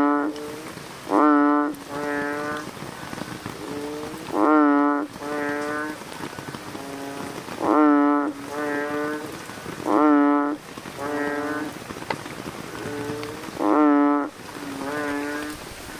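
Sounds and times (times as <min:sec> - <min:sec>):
frog calling: 0:00.0 - 0:02.7, 0:03.6 - 0:06.0, 0:06.6 - 0:11.8, 0:12.7 - 0:15.6
rain hiss: 0:00.0 - 0:15.9.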